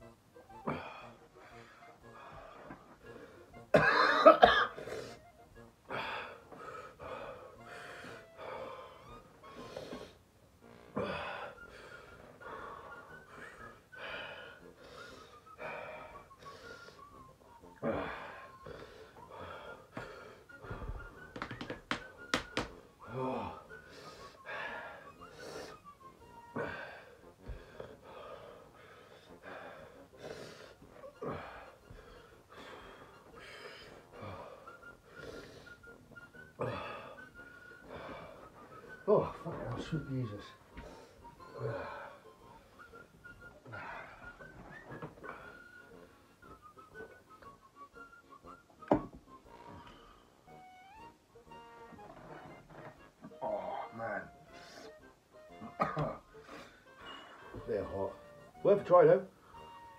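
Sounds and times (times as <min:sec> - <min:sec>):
man breathing in wheezy gasps: 0:04.7 - 0:10.2, 0:10.9 - 0:21.3, 0:23.0 - 0:39.0, 0:56.3 - 0:57.6.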